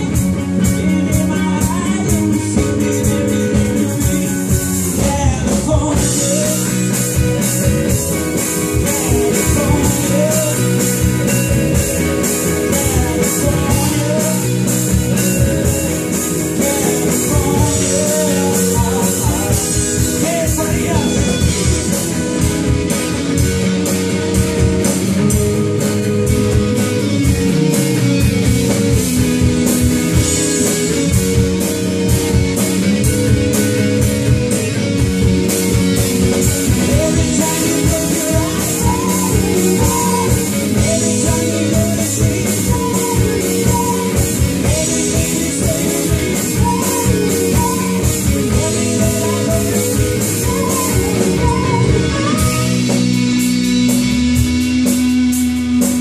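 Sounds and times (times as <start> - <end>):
person singing lead vocal: 0.0 - 22.6, 36.6 - 53.0
drum kit beat: 0.0 - 56.0
electric bass: 0.0 - 56.0
electric guitars: 0.0 - 56.0.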